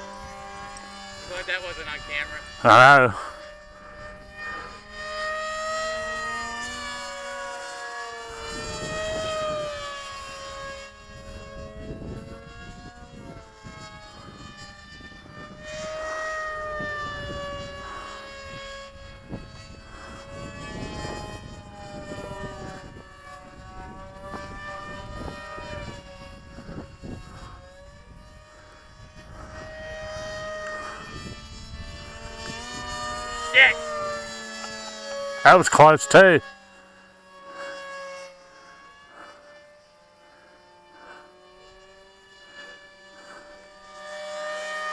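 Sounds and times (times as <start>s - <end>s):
model plane motor whine: 0.0s - 44.9s.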